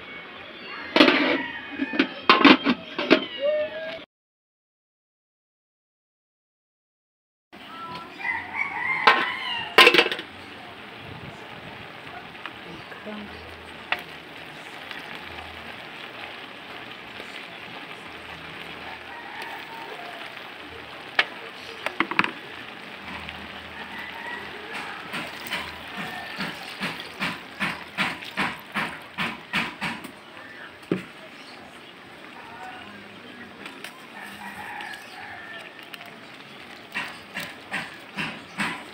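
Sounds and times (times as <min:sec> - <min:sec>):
steady cooking hiss: 0:07.6 - 0:38.9
wooden spatula knocking wok: 0:08.7 - 0:31.6, 0:33.6 - 0:38.9.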